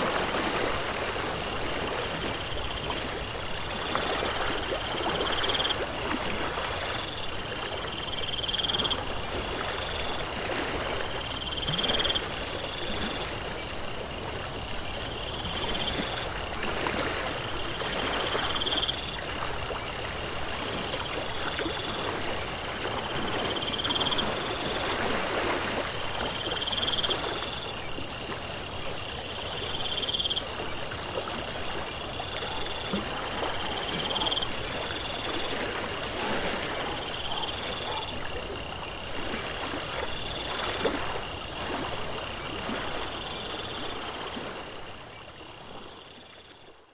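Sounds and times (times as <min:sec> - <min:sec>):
high insect chirping: 0:23.8 - 0:31.4.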